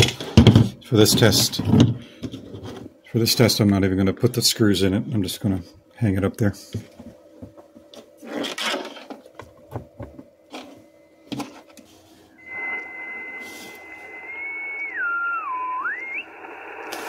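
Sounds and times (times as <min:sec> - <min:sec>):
shortwave receiver hiss: 0:11.8 - 0:17.0
radio carrier whistle: 0:12.4 - 0:17.0.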